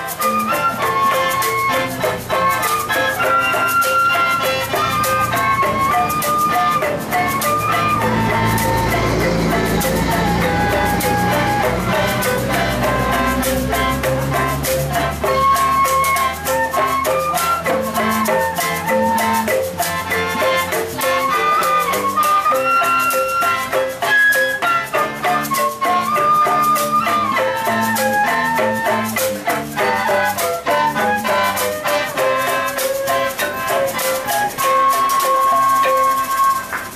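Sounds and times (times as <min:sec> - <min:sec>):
bamboo percussion: 0:00.0 - 0:36.9
bamboo wind instrument melody: 0:00.0 - 0:36.9
bamboo xylophone knocking: 0:00.0 - 0:36.9.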